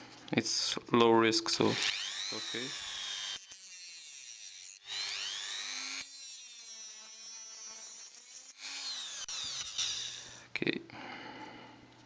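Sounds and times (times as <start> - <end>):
rotary tool cutting disc whine: 1.7 - 10.4.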